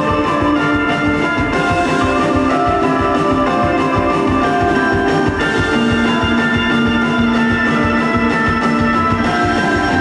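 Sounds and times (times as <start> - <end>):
busy drum beat: 0.0 - 10.0
electric guitars sustained notes: 0.0 - 10.0.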